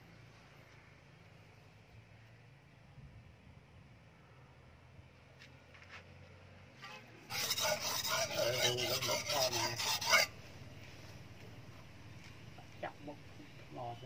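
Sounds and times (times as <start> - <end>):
blade rasping on whetstone: 6.8 - 10.4.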